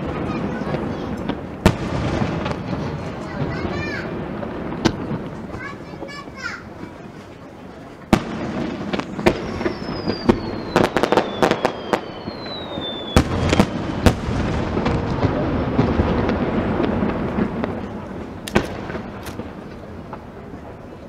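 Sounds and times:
dense firework crackle: 0.0s - 21.0s
fireworks shells bursting: 8.0s - 20.4s
firework whistle gliding down: 9.3s - 14.2s.

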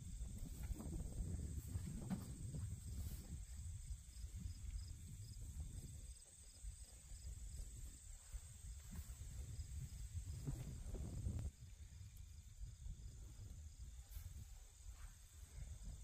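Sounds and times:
insects chirping: 0.0s - 16.0s
low wind rumble on microphone: 0.0s - 16.0s.

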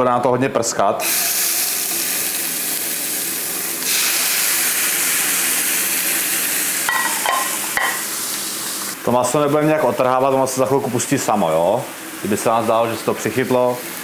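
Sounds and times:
meat sizzling in hot oil: 1.0s - 14.0s.

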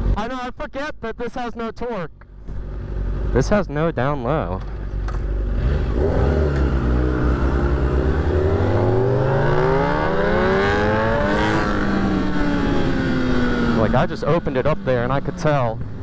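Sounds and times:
motorcycle engine revving: 4.2s - 16.0s.

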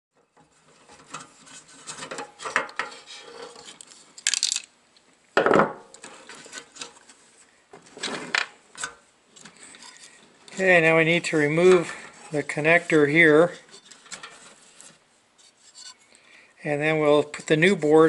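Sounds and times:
short metal scrapes: 0.6s - 3.8s, 11.2s - 16.1s.

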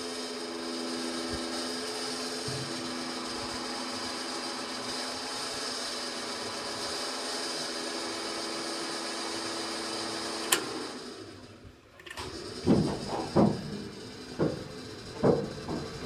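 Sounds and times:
fuel pump humming: 0.0s - 16.0s
switch click: 10.4s - 10.7s
diesel engine firing: 10.4s - 16.0s.

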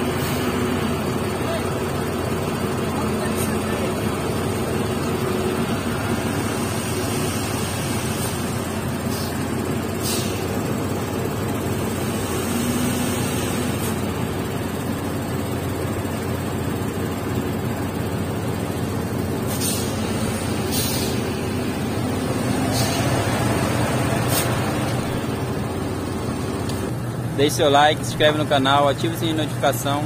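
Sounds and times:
diesel truck engine running: 0.0s - 30.0s
brief high hisses: 20.7s - 21.2s.

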